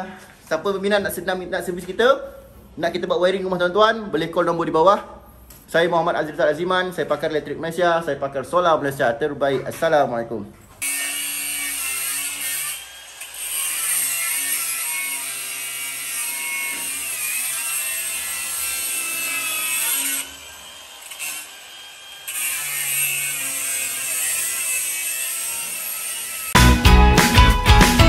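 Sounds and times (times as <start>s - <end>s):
angle grinder cutting metal: 10.8s - 26.6s.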